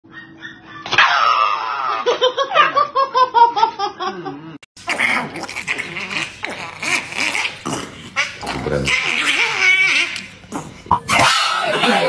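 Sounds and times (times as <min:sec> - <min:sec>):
dog yelping cries: 0:00.1 - 0:02.9, 0:08.2 - 0:10.3, 0:11.1 - 0:12.0
small dog crying and growling: 0:00.1 - 0:02.9, 0:04.8 - 0:12.0.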